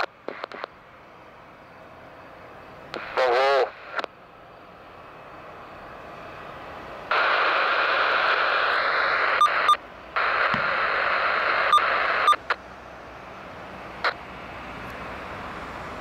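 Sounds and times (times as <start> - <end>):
radio static hiss: 0.0 - 0.8, 2.9 - 4.2, 7.1 - 12.6, 14.0 - 14.2
radio transmission clicks: 0.0 - 0.8, 2.9 - 4.2, 7.1 - 12.6.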